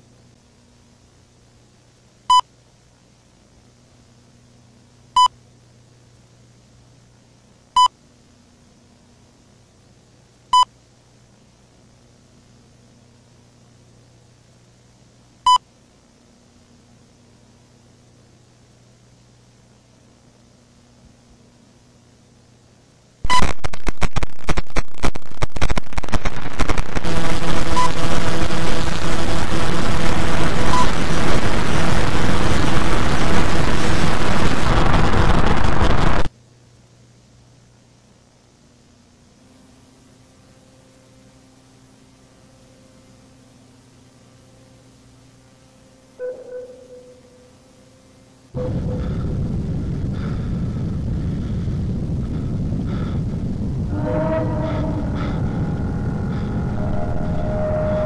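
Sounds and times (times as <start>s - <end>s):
dense buzzing noise: 0.0s - 2.6s, 3.3s - 58.0s
faint low hum: 0.0s - 58.0s
tape hiss: 0.0s - 58.0s
harsh distorted static: 23.2s - 36.3s, 48.6s - 58.0s
short electronic beeps: 23.3s - 23.6s.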